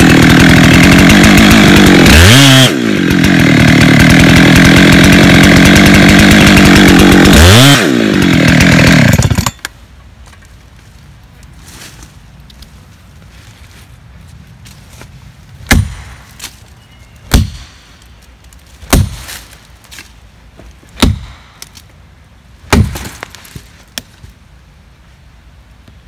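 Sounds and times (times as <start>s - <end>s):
axe chopping tree trunk: 15.7s - 16.6s, 17.3s - 17.8s, 18.8s - 20.0s, 20.9s - 21.8s, 22.7s - 24.1s.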